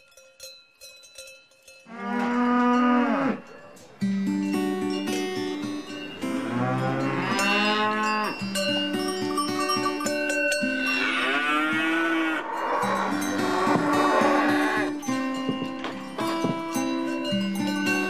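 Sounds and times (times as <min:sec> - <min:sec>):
soft plucked-string music: 0:03.9 - 0:10.8, 0:13.0 - 0:18.0
cattle mooing: 0:06.3 - 0:08.4, 0:10.7 - 0:15.0.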